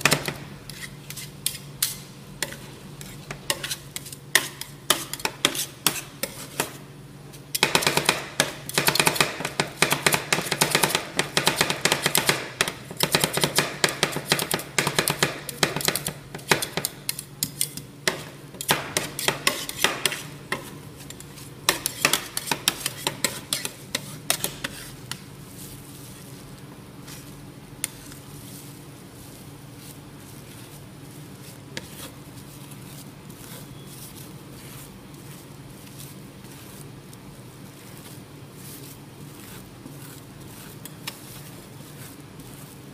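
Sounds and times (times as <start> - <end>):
metal spatulas chopping on plate: 0.0 - 6.8, 7.5 - 25.2
spatula scraping: 0.0 - 42.9
steady low hum: 0.0 - 42.9.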